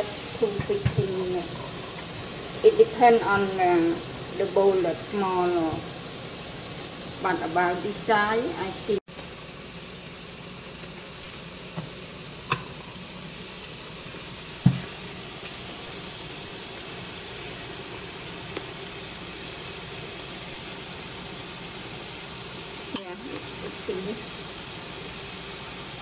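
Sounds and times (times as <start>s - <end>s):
steamer hissing: 0.0s - 26.0s
sharp knocks: 14.6s - 14.8s.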